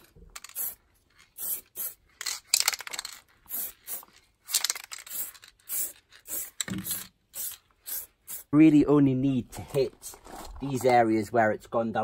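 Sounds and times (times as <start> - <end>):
aerosol spray bursts hissing: 1.4 - 2.0, 3.5 - 4.0, 5.1 - 8.5.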